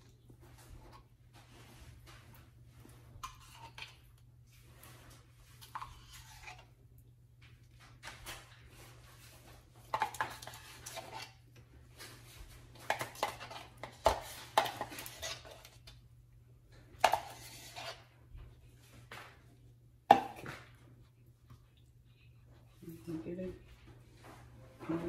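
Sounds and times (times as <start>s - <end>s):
metal spoon scraping and knocking: 12.9s - 15.9s, 17.0s - 18.1s.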